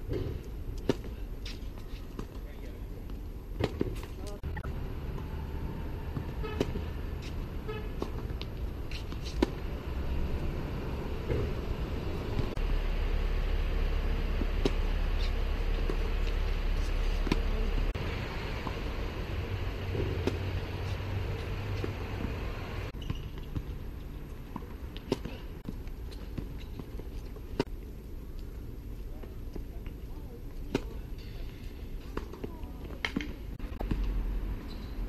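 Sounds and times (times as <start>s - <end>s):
rackets striking tennis balls: 3.1s - 4.6s, 6.2s - 12.6s, 14.2s - 18.0s, 19.7s - 27.8s, 29.5s - 35.0s
steady low rumble: 4.4s - 23.0s.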